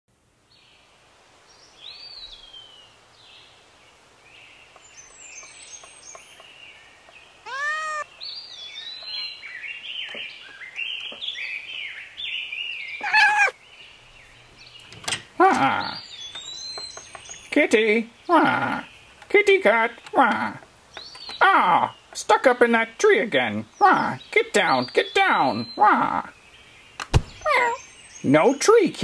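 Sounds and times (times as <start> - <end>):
songbirds chirping: 0.2 - 29.0
cat meowing loudly: 7.4 - 8.1, 13.0 - 13.6, 27.4 - 27.8.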